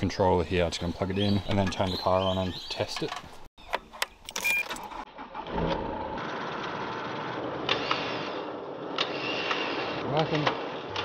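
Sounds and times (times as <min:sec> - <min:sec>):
electric winch motor running: 0:05.2 - 0:10.0.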